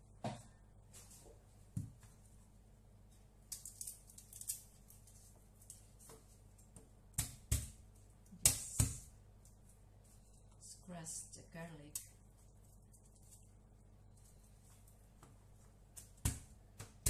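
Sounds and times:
papery rustling of garlic peeling: 3.5 - 6.5, 12.4 - 13.6.

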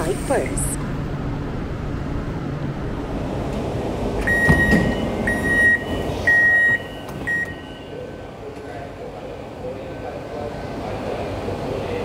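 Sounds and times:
train rumble: 0.0 - 12.0
train door chime beeps: 4.2 - 8.1.

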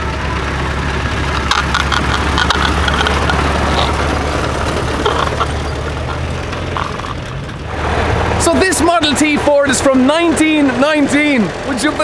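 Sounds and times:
car engine running: 0.0 - 12.0
sharp clicks: 1.3 - 7.6.

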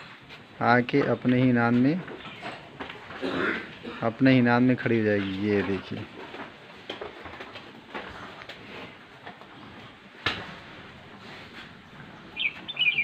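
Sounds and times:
low rustle of feeding animals: 4.4 - 13.0
high bird chirps: 12.3 - 13.0.

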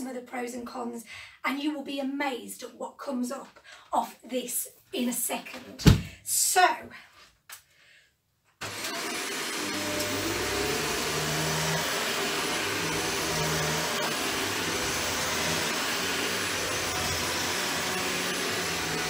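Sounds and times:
upright vacuum cleaner running: 8.6 - 19.0.

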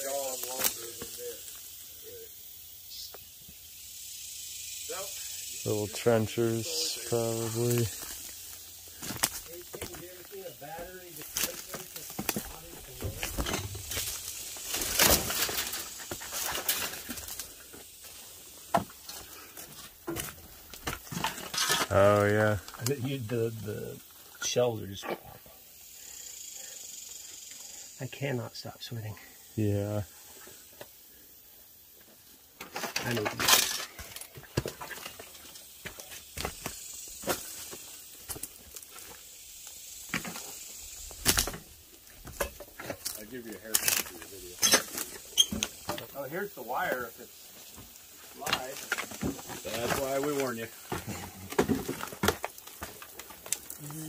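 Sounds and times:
steady high hiss: 0.0 - 54.0
footsteps through brush: 6.8 - 21.7
twigs crunching and snapping: 7.6 - 10.1, 11.2 - 17.6, 41.0 - 46.0, 47.6 - 54.0.

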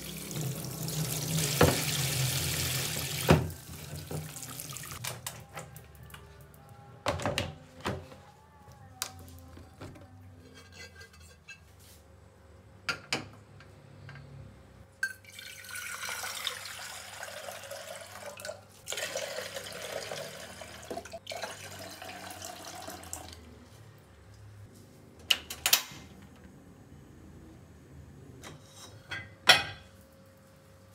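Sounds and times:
water pouring into glass pot: 15.1 - 23.4.

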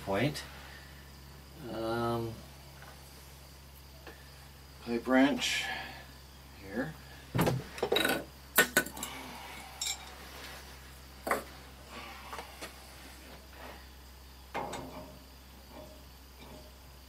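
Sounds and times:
metal hand tools clinking: 7.9 - 10.2
metal rattle: 14.5 - 17.0.

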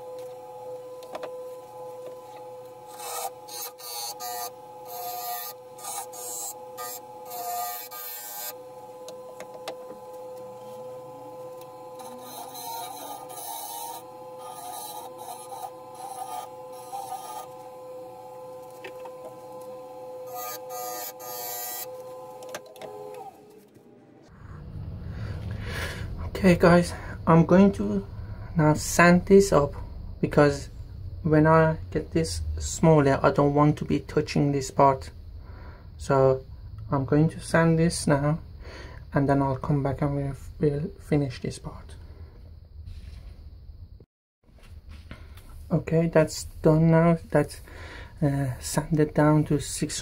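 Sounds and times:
tools cutting spinning wood: 0.0 - 23.8
lathe motor whine: 0.0 - 38.6.

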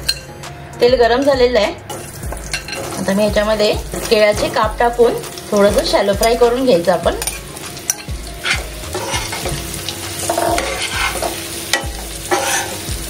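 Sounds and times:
food sizzling in hot oil: 1.0 - 13.0
spatula scraping a pan: 7.2 - 13.0.

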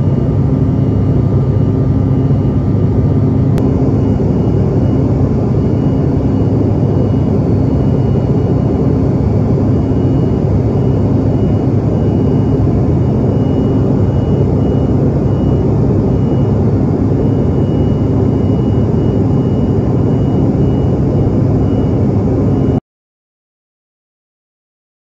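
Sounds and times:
faint high whine: 0.0 - 22.8
jet cabin roar: 0.0 - 22.8.

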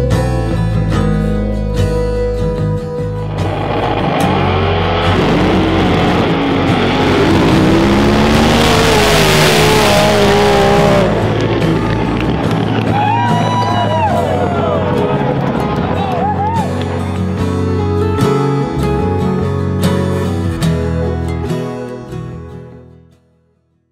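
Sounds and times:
background music: 0.0 - 23.3
racing engine revving: 3.0 - 19.2
rushing roar: 3.0 - 19.4.

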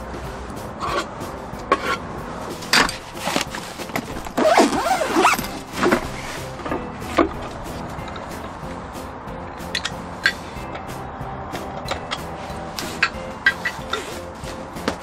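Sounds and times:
zipper on fabric bag: 3.2 - 6.4.

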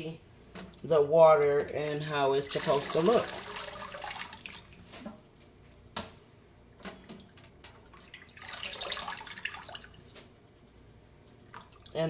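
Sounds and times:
water trickling off greens: 2.2 - 5.0, 6.8 - 10.3
small water splashes and drips: 2.5 - 4.9, 6.8 - 10.3, 11.4 - 12.0.

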